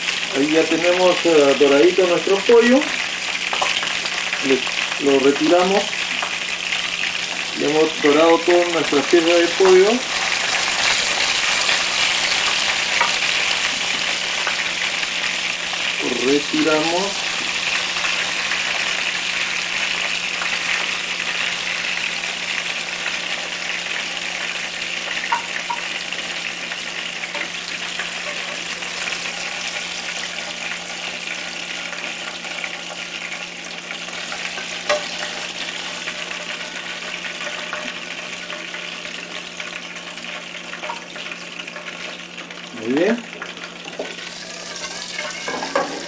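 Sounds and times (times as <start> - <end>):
chicken sizzling in hot oil: 0.0 - 46.0
wooden spoon knocking pan: 25.3 - 25.9, 43.4 - 46.0.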